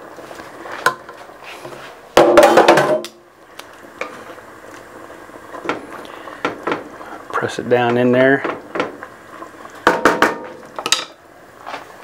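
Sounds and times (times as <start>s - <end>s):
wooden spoon knocking in pot: 9.8s - 11.1s.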